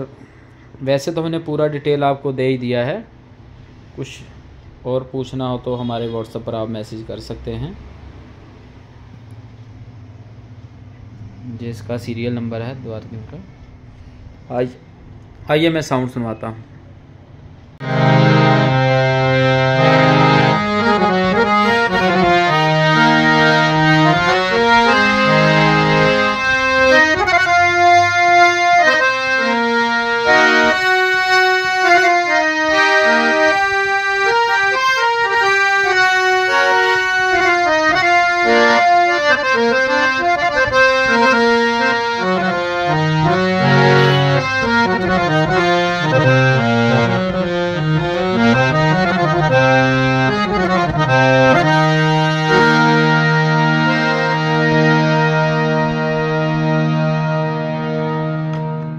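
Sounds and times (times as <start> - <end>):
harmonium playing a tune: 17.8 - 58.9.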